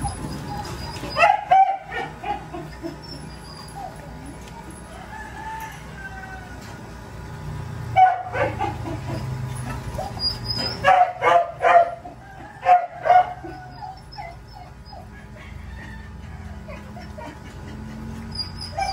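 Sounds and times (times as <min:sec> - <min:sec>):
dog yipping and barking: 0:00.0 - 0:04.4, 0:08.0 - 0:15.4, 0:18.2 - 0:18.9
dog whining: 0:00.0 - 0:04.6, 0:09.0 - 0:10.9, 0:13.2 - 0:18.9.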